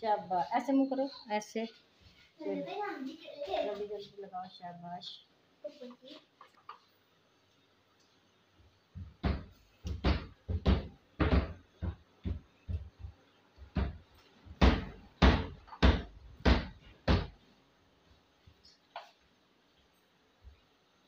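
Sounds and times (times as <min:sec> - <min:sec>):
repeated thumps and knocks: 0:08.9 - 0:17.4.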